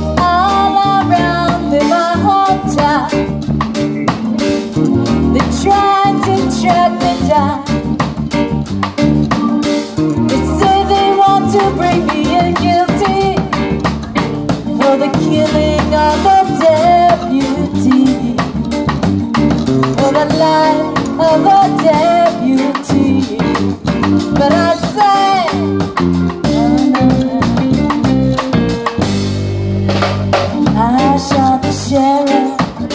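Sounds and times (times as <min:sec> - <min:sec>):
woman singing: 0:00.0 - 0:03.3, 0:04.9 - 0:07.9, 0:09.3 - 0:13.8, 0:14.5 - 0:18.7, 0:20.0 - 0:28.4, 0:30.5 - 0:32.9
bass line: 0:00.0 - 0:32.9
drum kit: 0:00.0 - 0:32.9
keyboard: 0:00.0 - 0:32.9.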